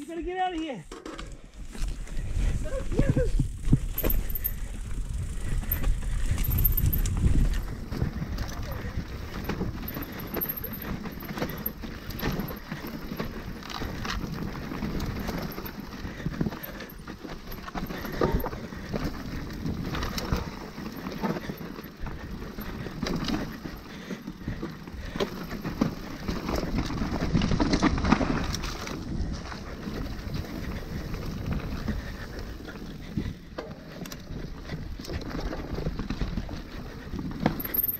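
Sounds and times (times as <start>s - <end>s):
bike tyres rolling on dirt: 0.1s - 37.9s
bike knocks and rattles: 3.4s - 29.4s, 37.2s - 37.9s.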